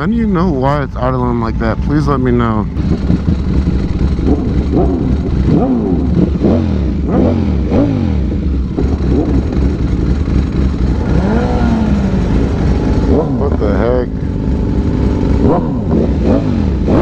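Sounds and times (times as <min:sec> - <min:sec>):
engine revving in throttle blips: 0:00.0 - 0:17.0
motorcycle engine running: 0:00.0 - 0:17.0.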